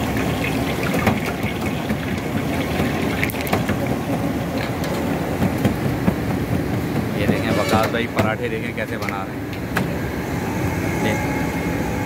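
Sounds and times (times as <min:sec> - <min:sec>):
hot fat sizzling and bubbling: 0:00.0 - 0:07.2.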